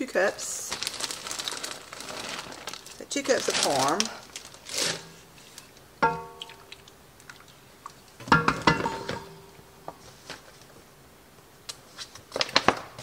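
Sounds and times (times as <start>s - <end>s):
plastic bag rustling and crinkling: 0.3s - 5.8s.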